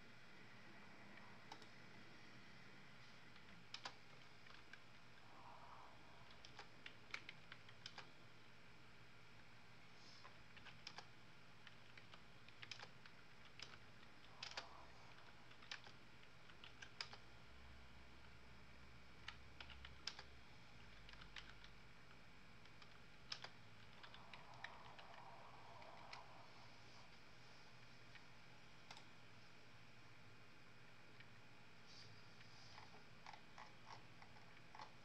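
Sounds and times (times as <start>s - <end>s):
low room hum: 0.0s - 35.0s
computer keyboard typing: 1.4s - 1.8s, 3.3s - 5.0s, 6.2s - 8.2s, 10.2s - 17.3s, 19.2s - 21.8s, 22.6s - 26.3s.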